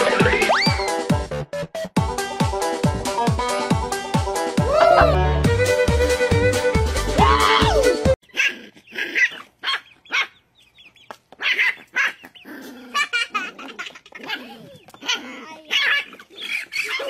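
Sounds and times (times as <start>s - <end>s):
puppy yapping: 8.2s - 10.4s, 11.4s - 17.0s.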